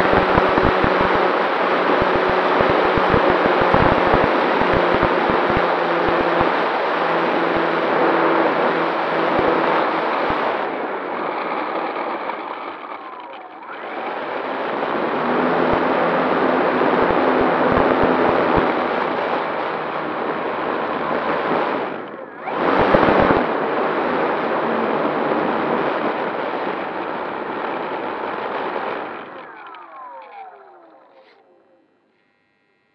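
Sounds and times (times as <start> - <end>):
model plane motor and propeller: 0.0 - 32.9.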